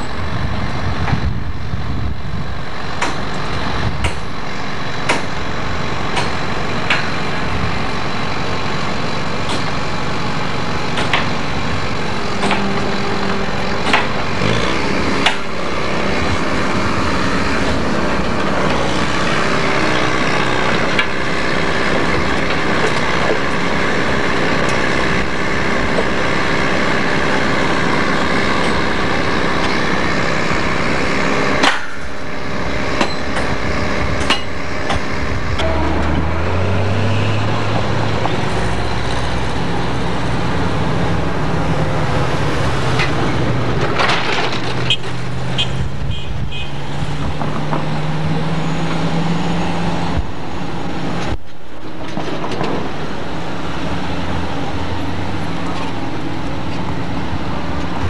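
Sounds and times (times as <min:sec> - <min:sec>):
heavy machinery running: 0:00.0 - 0:46.0.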